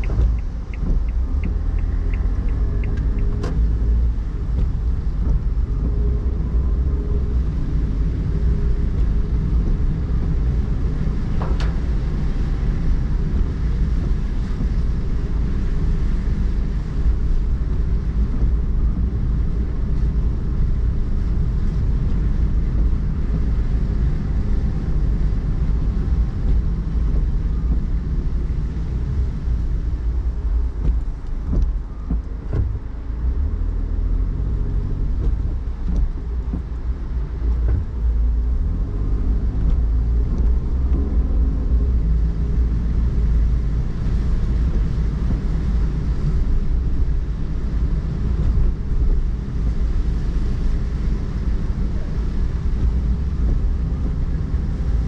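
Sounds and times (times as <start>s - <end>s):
car road and engine rumble: 0.0s - 55.0s.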